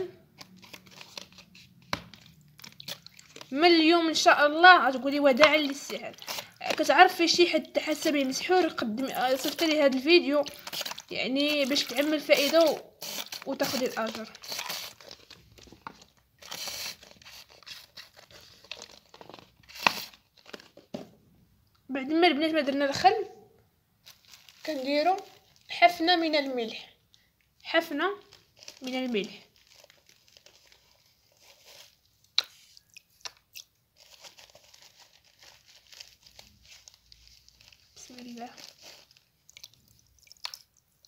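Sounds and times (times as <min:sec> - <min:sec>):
plastic bag crinkling: 0:00.0 - 0:20.9, 0:24.0 - 0:26.0, 0:28.1 - 0:32.8, 0:33.9 - 0:41.0
salt crunching: 0:02.2 - 0:03.6.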